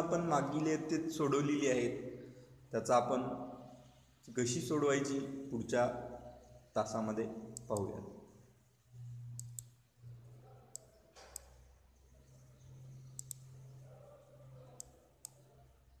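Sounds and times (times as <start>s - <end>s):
low steady hum: 5.2s - 16.0s
mouse button clicks: 13.1s - 13.6s.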